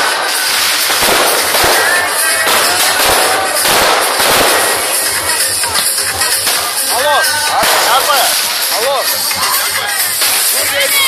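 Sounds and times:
fireworks bangs and crackling: 0.0s - 11.0s.

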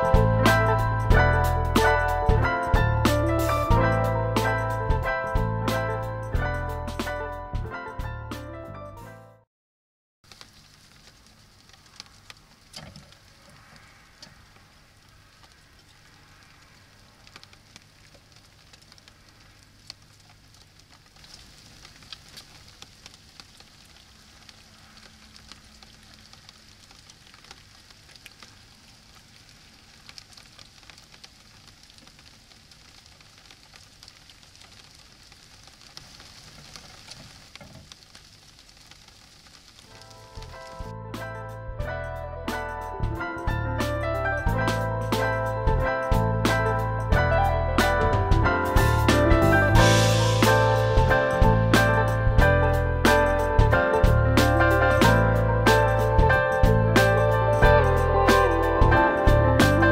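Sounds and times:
small irregular clicks: 10.3s - 40.9s
faint microphone hiss: 10.3s - 41.0s.

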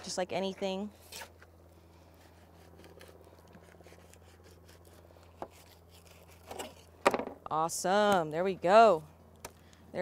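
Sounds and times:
fillet knife scraping: 2.0s - 7.0s.

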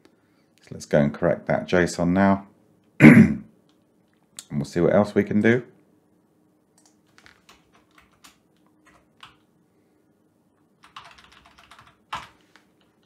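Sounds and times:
computer keyboard keystrokes: 6.8s - 9.5s, 10.8s - 13.0s.

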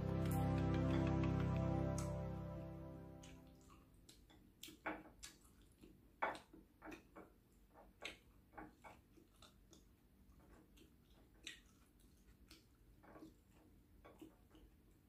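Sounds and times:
person chewing: 3.4s - 7.2s, 8.0s - 15.0s.

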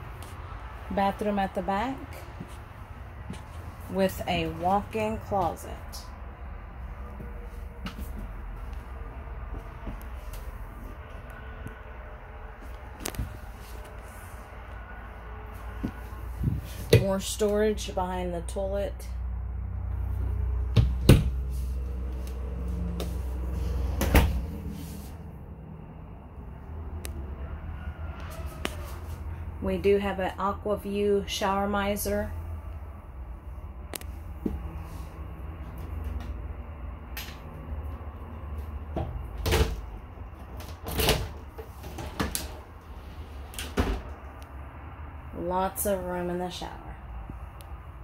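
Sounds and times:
steady low rumble: 0.0s - 28.1s, 29.0s - 40.8s, 41.4s - 48.0s.

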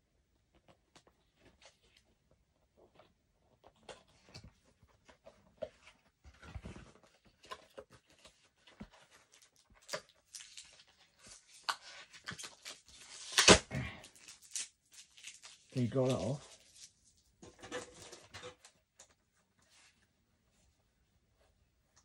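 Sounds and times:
box handling clicks and rustles: 3.6s - 10.2s, 17.4s - 19.2s
sticky tape ripping: 11.6s - 15.6s.

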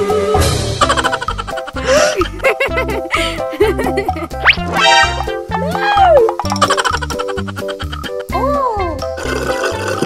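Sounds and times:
playful bouncy music: 0.0s - 10.0s
comic sliding tone: 4.4s - 6.4s.

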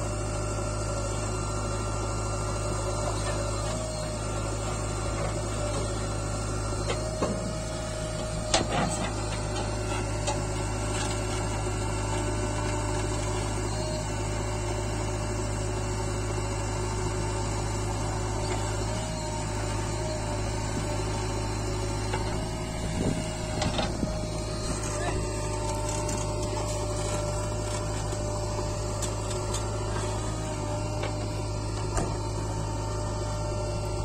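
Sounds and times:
diesel engine running: 0.0s - 34.0s.

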